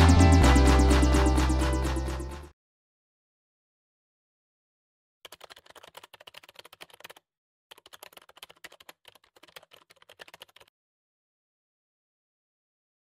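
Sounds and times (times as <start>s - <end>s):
keyboard typing clicks: 5.3s - 10.7s.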